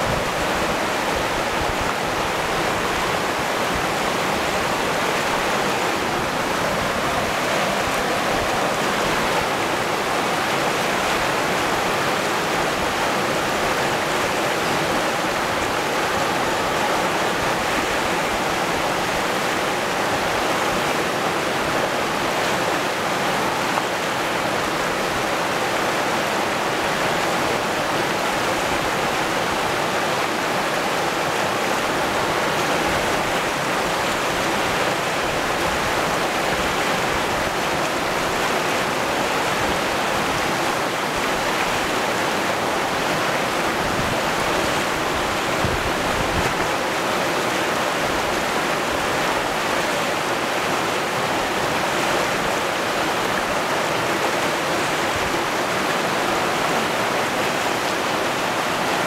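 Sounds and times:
river rushing over rapids: 0.0 - 59.0.

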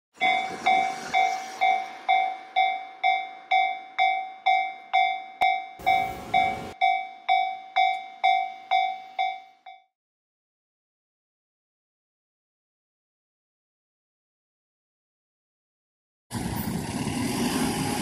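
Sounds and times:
level crossing warning bell: 0.1 - 9.9.

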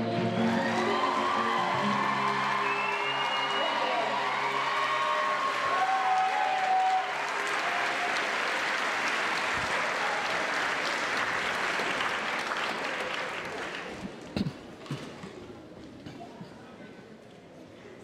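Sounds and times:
audience applauding: 0.4 - 14.5.

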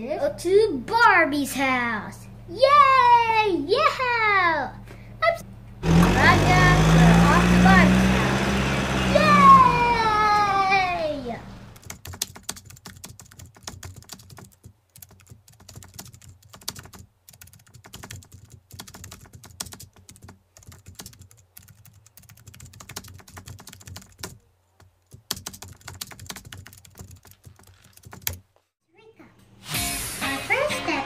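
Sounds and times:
keyboard typing: 11.7 - 28.4.

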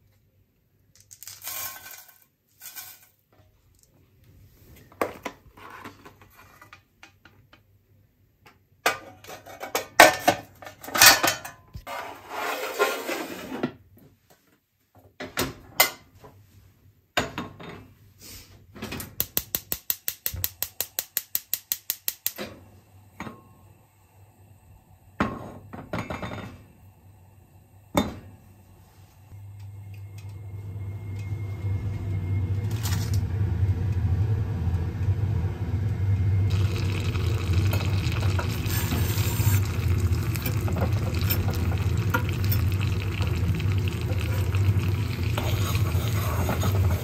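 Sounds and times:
metal pans clattering and scraping: 8.9 - 13.8.

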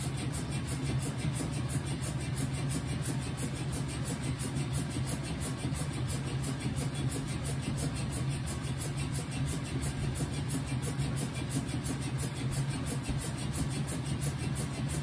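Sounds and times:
washing machine running: 0.0 - 15.0.

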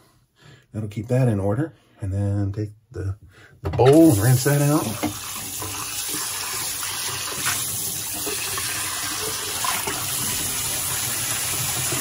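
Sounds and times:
bowl being rinsed: 3.9 - 12.0
tap water running into sink: 3.9 - 12.0.

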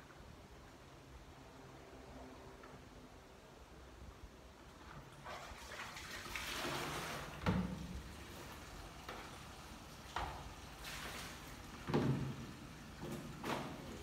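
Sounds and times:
water splashing into plastic basin: 4.9 - 14.0.

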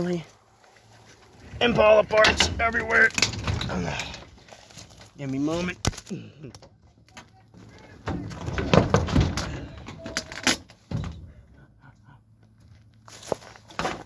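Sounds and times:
door knocking and clattering: 8.1 - 9.7.

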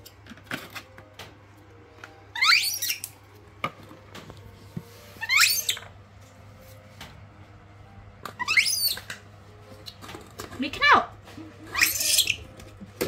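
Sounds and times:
baby monkey squealing: 2.3 - 3.1, 5.2 - 5.8, 8.4 - 9.1, 11.7 - 12.5.

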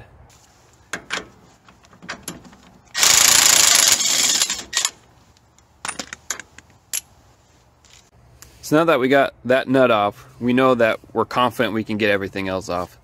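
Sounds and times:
impact wrench hammering: 3.0 - 4.9.

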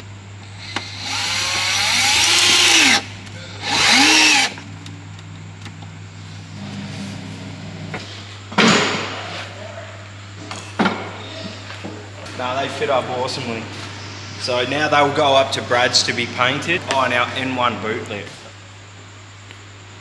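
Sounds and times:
cordless drill driving screws: 0.6 - 4.6.

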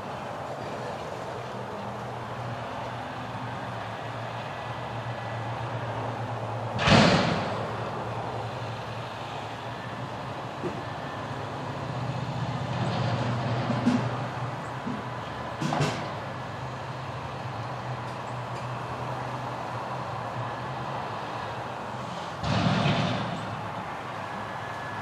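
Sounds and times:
diesel truck engine running: 0.0 - 25.0
dumpster load crashing: 6.8 - 7.7, 22.4 - 23.8.

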